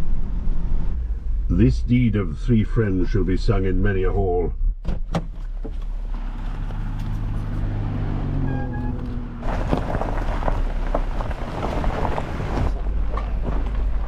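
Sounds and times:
low engine note: 0:00.0 - 0:04.8, 0:05.4 - 0:14.0
tyres crunching over gravel: 0:05.4 - 0:14.0.

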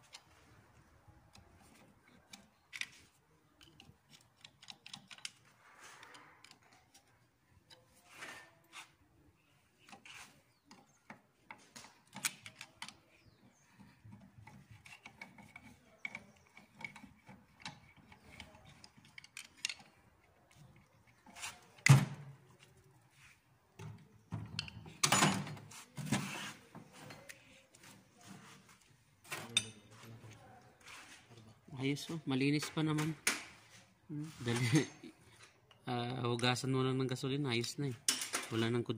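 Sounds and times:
metal parts clicking and scraping: 0:01.3 - 0:08.5, 0:09.8 - 0:21.6
wrench turning bolts: 0:03.6 - 0:05.4.

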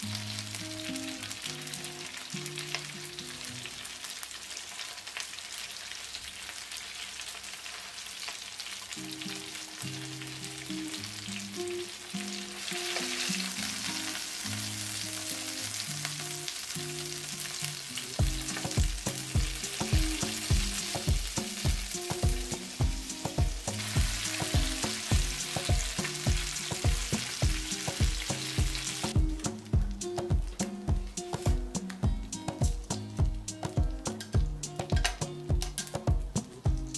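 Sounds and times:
fat sizzling in a frying pan: 0:00.0 - 0:36.9
background music with beat: 0:18.2 - 0:36.9.

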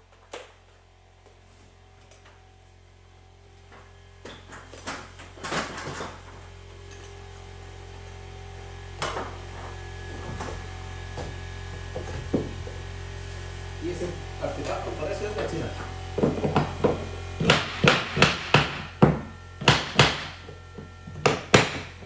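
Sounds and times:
steady low hum: 0:00.0 - 0:22.0
knocks of molding and tools: 0:16.2 - 0:22.0.

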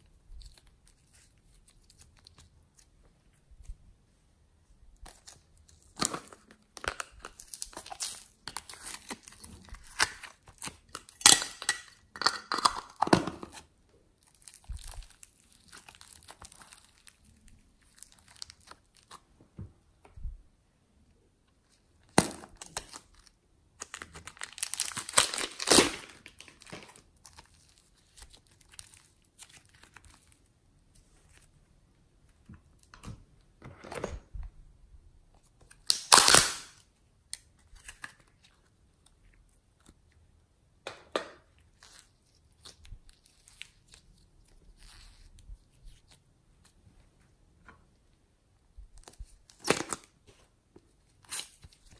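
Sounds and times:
plastic cup crinkling: 0:05.1 - 0:19.2.

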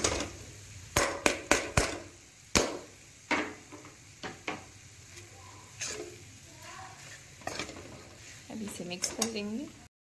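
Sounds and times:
metal spoon tapping a metal pan: 0:01.0 - 0:03.5.

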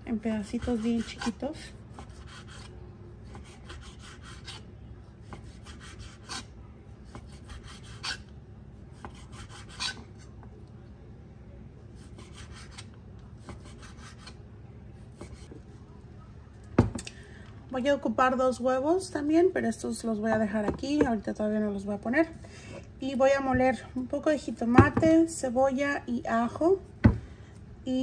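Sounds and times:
knife cutting bacon: 0:00.5 - 0:02.7, 0:03.3 - 0:04.6, 0:05.2 - 0:06.5, 0:07.1 - 0:08.3, 0:09.0 - 0:10.1.

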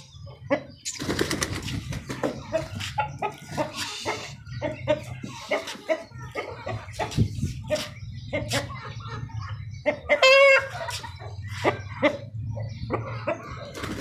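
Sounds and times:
chickens clucking: 0:00.0 - 0:14.0.

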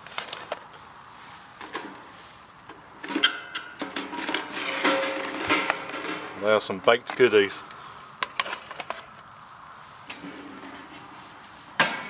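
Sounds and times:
foil crinkling: 0:00.0 - 0:01.4, 0:08.2 - 0:09.3
metal tray scraping and rattling: 0:03.0 - 0:06.4.

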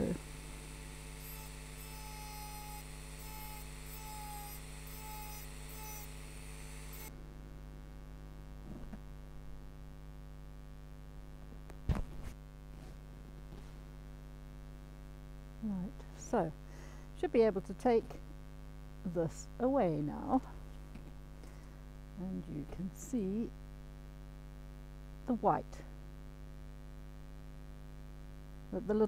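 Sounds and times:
electrical hum: 0:00.0 - 0:29.0
engraving tool grinding glass: 0:01.0 - 0:07.1.

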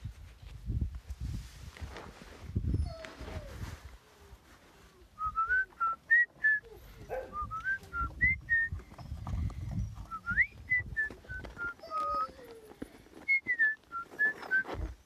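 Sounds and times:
person whistling short notes: 0:05.2 - 0:08.8, 0:10.1 - 0:12.3, 0:13.3 - 0:14.9.

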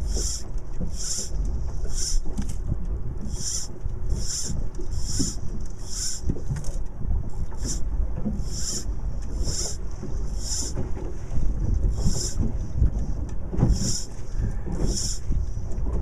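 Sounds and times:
wind buffeting microphone: 0:00.0 - 0:16.0
fly line rasping swish: 0:08.4 - 0:09.8, 0:10.4 - 0:10.8, 0:13.7 - 0:14.2.

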